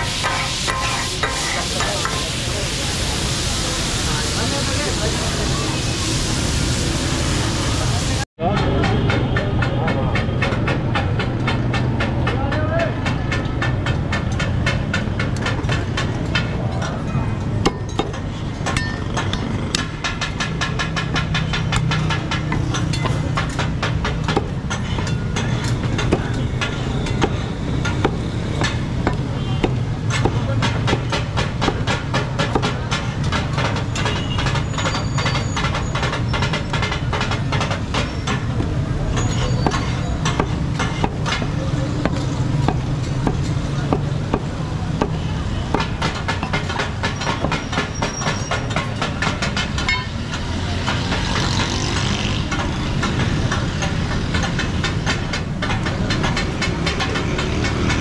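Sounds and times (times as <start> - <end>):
cleaver chopping on wooden block: 39.6 - 49.9.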